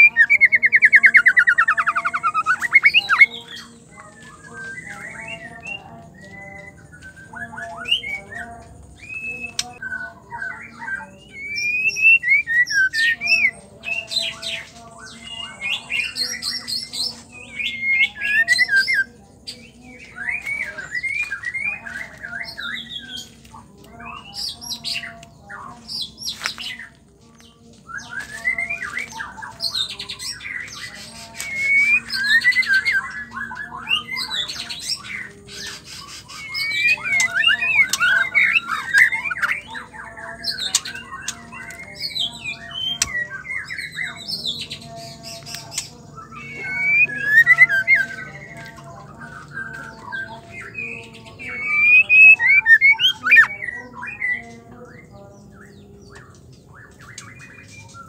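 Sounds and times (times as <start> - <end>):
bird singing whistled phrases: 0.0 - 8.4, 9.0 - 13.5, 27.9 - 34.5, 35.6 - 44.2, 45.5 - 48.2, 49.6 - 54.4.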